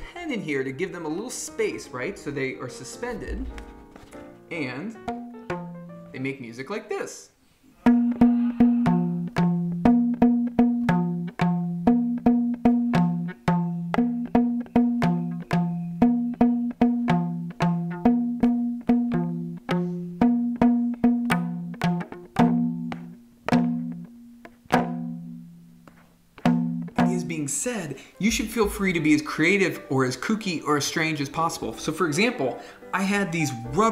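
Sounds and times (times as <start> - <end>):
rubber bands plucked twanging: 3.0 - 6.1, 7.8 - 27.5.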